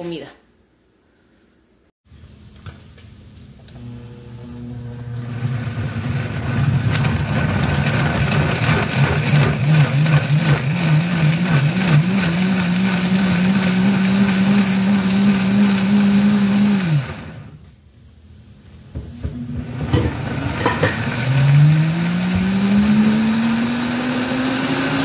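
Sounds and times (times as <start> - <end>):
blender motor pureeing: 3.7 - 17.6, 19.6 - 25.0.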